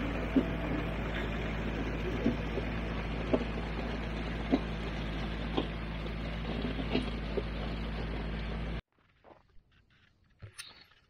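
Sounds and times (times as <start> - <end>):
tractor diesel engine running: 0.0 - 8.8.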